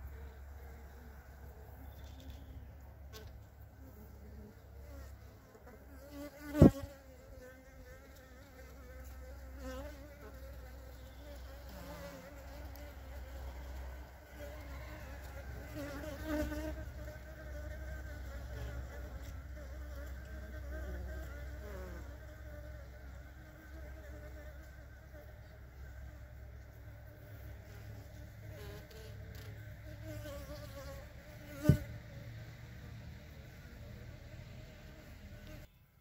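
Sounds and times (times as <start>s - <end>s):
honeybees buzzing: 0.0s - 35.7s.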